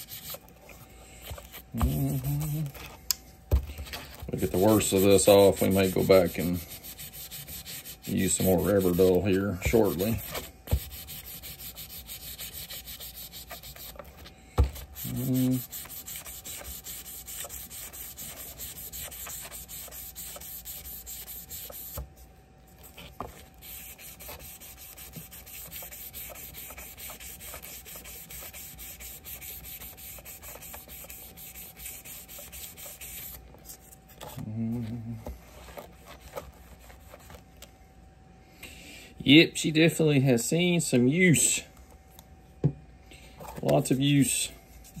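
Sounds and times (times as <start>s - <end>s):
sandpaper scrubbing metal: 0.0s - 0.4s, 4.4s - 14.1s, 14.8s - 22.0s, 23.6s - 33.4s.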